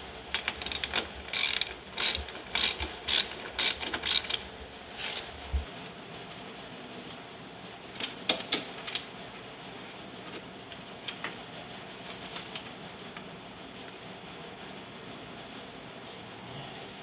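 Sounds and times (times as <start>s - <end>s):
metallic clicks of hand tools: 0.4s - 4.4s.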